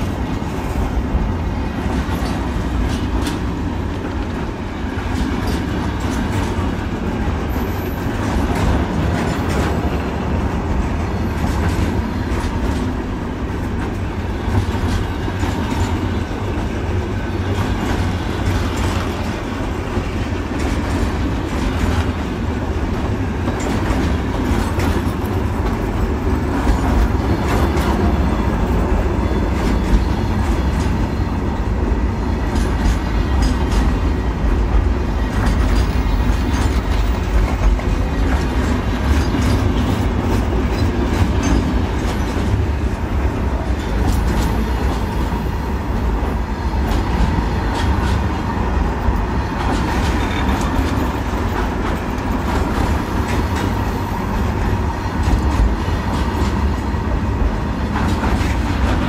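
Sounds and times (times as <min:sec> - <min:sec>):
train wheels rumbling on rail: 0:00.0 - 0:59.0
wheels clacking over rail joints: 0:00.0 - 0:59.0.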